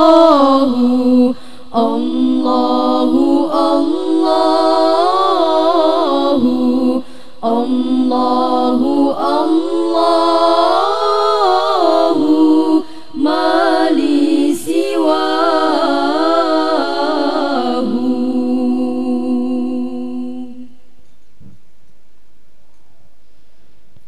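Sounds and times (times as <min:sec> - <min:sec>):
girls singing a cappella: 0:00.0 - 0:20.8
singer breathing: 0:01.3 - 0:01.8, 0:07.0 - 0:07.4, 0:12.8 - 0:13.2.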